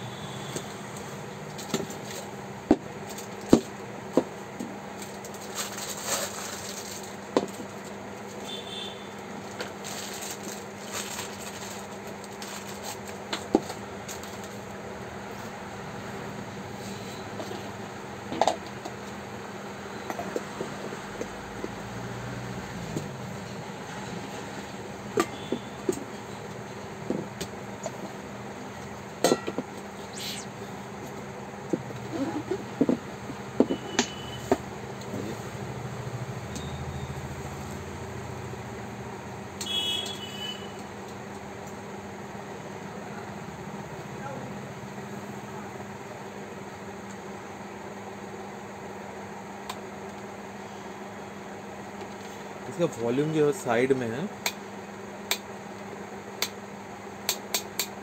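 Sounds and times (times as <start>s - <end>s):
plastic wrapping crinkling: 5.0s - 7.2s, 9.7s - 13.2s
brief swish: 30.1s - 30.5s.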